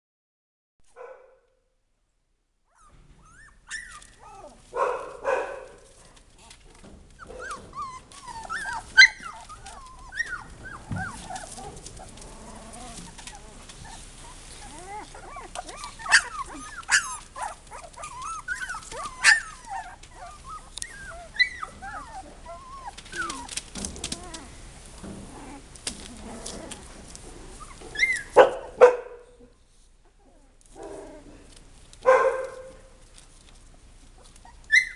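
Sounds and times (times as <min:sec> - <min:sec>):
puppy barks: 0:00.9 - 0:01.5, 0:04.3 - 0:06.0, 0:16.0 - 0:18.0, 0:18.9 - 0:19.6, 0:28.1 - 0:29.5, 0:32.0 - 0:32.9
puppies whimpering and yipping: 0:02.7 - 0:04.7, 0:06.4 - 0:24.5, 0:25.3 - 0:28.4, 0:34.1 - 0:34.9
newspaper crinkling: 0:08.0 - 0:20.2.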